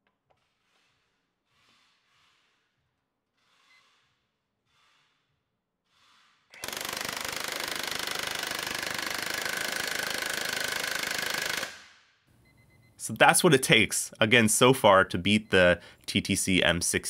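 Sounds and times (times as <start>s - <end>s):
impact wrench hammering bolt: 6.5s - 11.9s.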